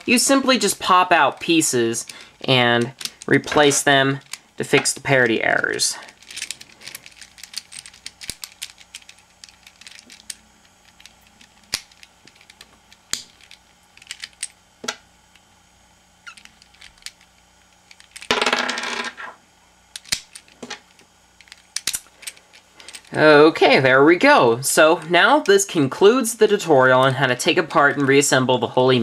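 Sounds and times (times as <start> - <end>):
plastic pieces clattering: 0.0 - 15.0
plastic puzzle clicking: 2.1 - 14.5, 20.0 - 20.7.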